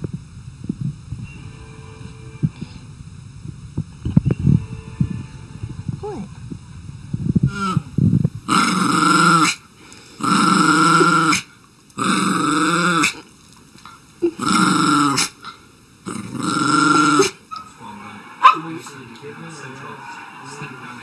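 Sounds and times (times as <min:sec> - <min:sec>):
small dog growling: 0:08.5 - 0:09.6, 0:10.2 - 0:13.3, 0:14.2 - 0:17.4.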